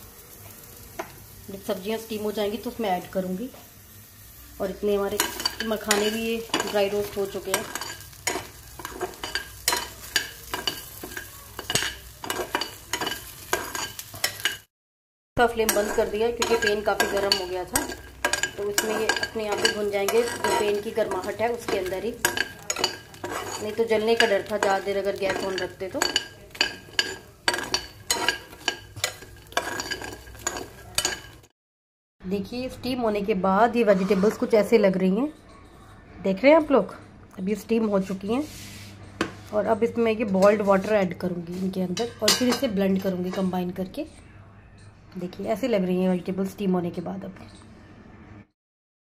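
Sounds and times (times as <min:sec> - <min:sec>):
metal spoon scraping a pan: 0:04.9 - 0:14.7, 0:15.5 - 0:31.5, 0:33.7 - 0:35.4.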